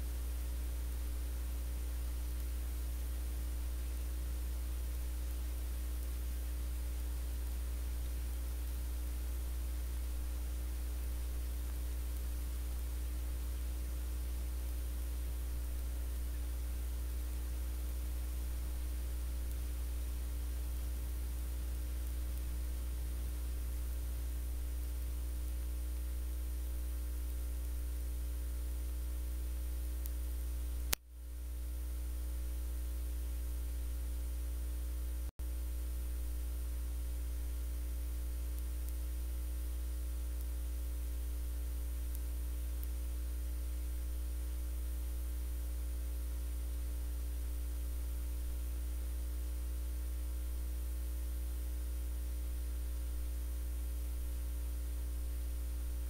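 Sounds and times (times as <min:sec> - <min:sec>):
electrical mains hum with hiss: 0:00.0 - 0:56.0
faint steady tones: 0:00.0 - 0:56.0
click: 0:19.3 - 0:19.7, 0:30.0 - 0:31.0, 0:37.7 - 0:39.0, 0:41.3 - 0:43.0.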